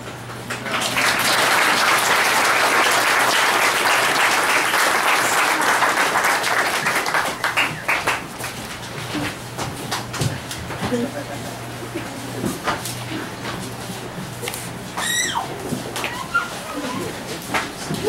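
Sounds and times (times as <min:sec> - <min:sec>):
audience applauding: 0:00.5 - 0:08.8.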